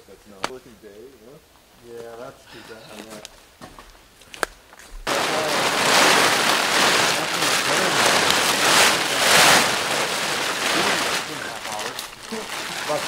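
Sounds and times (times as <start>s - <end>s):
heavy fabric rustling: 4.9s - 13.0s.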